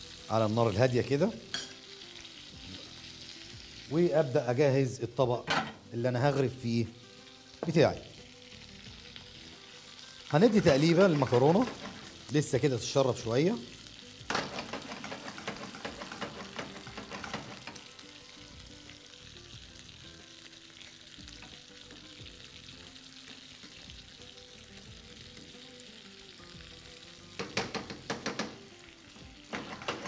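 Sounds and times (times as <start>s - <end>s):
sauce bubbling and sizzling in pan: 0.0s - 30.0s.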